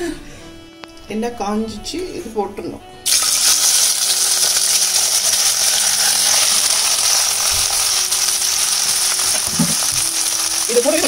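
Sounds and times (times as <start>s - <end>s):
vegetables sizzling in hot oil: 3.1s - 11.0s.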